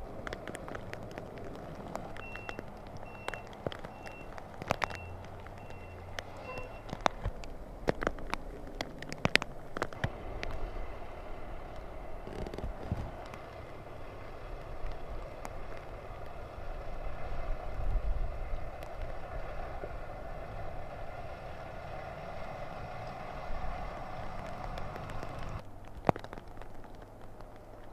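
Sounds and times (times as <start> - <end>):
sharp clicks: 0.2 - 10.6
distant diesel engine drone: 9.9 - 25.6.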